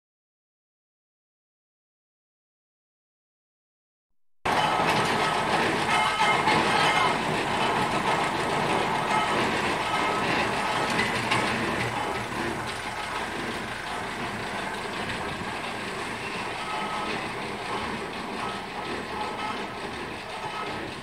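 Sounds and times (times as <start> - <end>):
steam traction engine travelling: 4.5 - 21.0.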